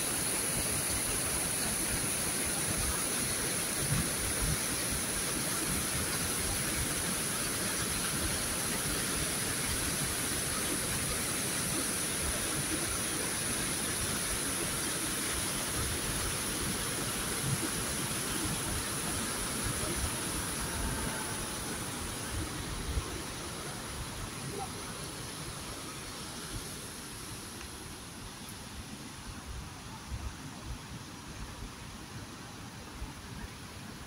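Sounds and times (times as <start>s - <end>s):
stream tumbling over rocks: 0.0s - 30.0s
waterfall roaring: 0.0s - 34.0s.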